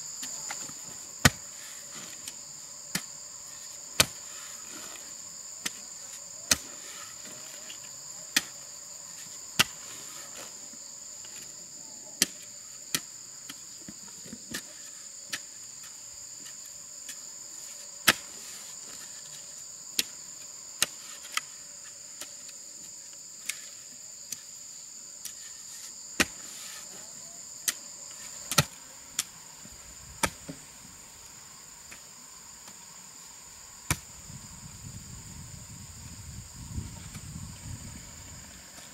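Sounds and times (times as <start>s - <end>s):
insects chorus: 0.0s - 38.9s.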